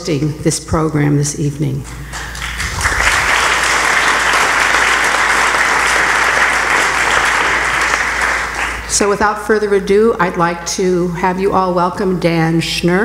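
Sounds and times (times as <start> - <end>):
audience applauding: 2.1 - 8.9.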